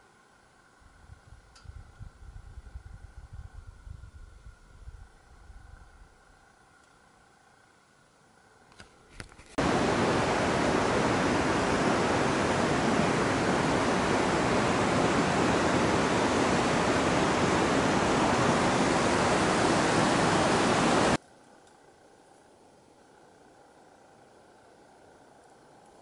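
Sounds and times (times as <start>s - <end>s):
river water rushing over rocks: 9.6s - 21.2s.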